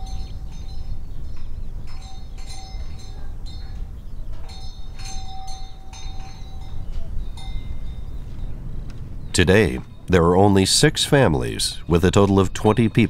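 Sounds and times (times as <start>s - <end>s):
animal bells clinking: 0.0s - 10.2s
steady low rumble: 2.0s - 13.0s.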